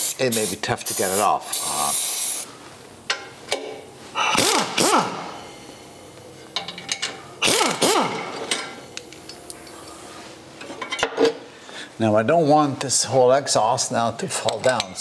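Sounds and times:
pneumatic impact wrench: 0:04.3 - 0:05.3, 0:07.4 - 0:08.8.

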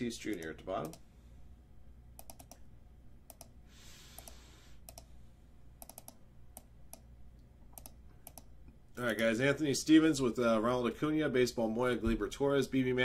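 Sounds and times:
keyboard and mouse clicks: 0:00.2 - 0:01.0, 0:02.2 - 0:02.7, 0:03.3 - 0:05.1, 0:05.8 - 0:07.1, 0:07.7 - 0:08.5.

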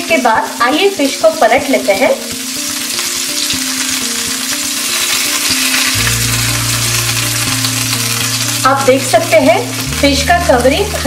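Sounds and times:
fish sizzling in oil: 0:00.0 - 0:11.0
soft background music: 0:00.0 - 0:11.0.

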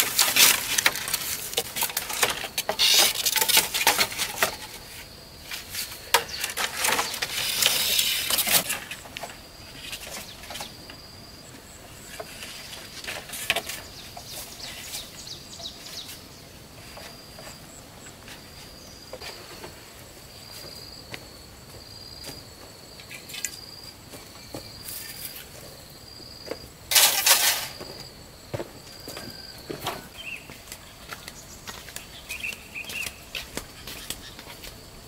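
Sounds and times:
insect trilling: 0:01.9 - 0:05.1, 0:05.9 - 0:11.4.

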